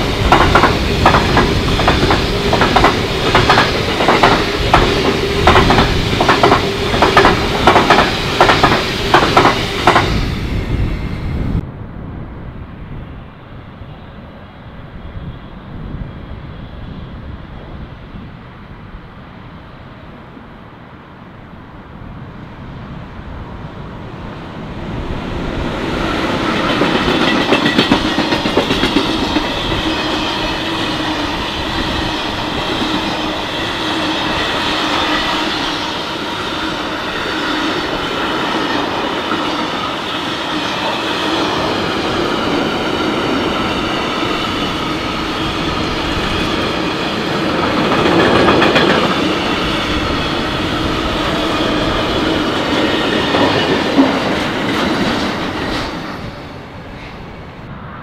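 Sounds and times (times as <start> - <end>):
wheels clacking on rail joints: 0.0 - 10.2, 25.8 - 31.4, 32.2 - 56.3
electric freight train passing: 0.0 - 58.0.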